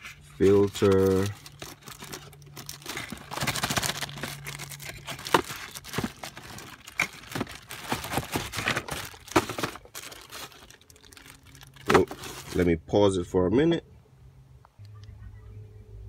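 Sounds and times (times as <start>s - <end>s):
air filter scraping and crinkling: 0.0s - 12.8s.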